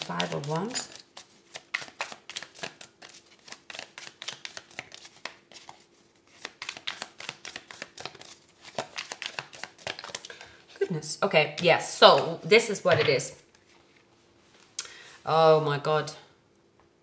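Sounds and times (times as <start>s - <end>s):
cards being shuffled: 0.0s - 10.3s.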